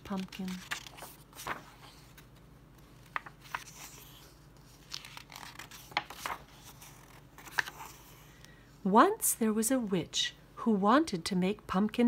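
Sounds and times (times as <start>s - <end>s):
book pages rustling: 0.0s - 8.3s.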